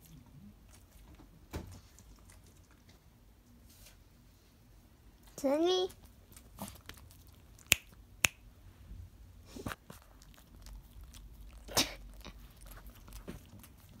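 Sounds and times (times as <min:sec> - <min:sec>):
dog chewing wetly: 0:09.8 - 0:14.0.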